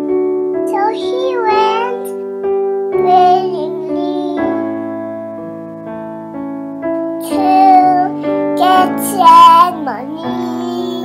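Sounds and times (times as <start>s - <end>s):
electric piano chords: 0.0s - 11.0s
child singing: 0.7s - 2.1s, 3.0s - 4.8s, 7.2s - 11.0s.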